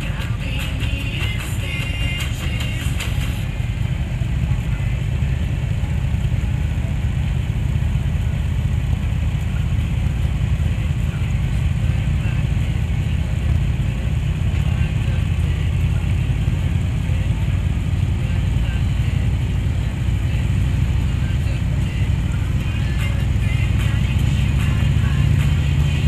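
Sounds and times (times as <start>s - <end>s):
motorcycle engine rumble: 0.0s - 26.0s
road noise: 0.0s - 26.0s.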